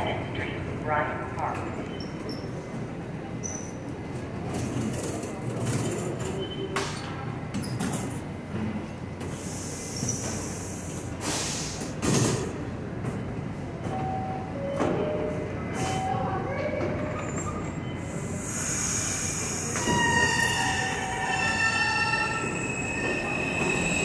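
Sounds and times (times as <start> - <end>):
subway trains rumbling: 0.0 - 24.0
air hiss: 9.3 - 12.0.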